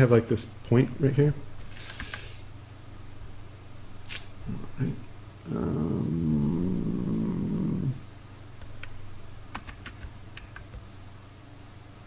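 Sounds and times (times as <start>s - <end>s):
man humming with wavering pitch: 5.4s - 8.1s.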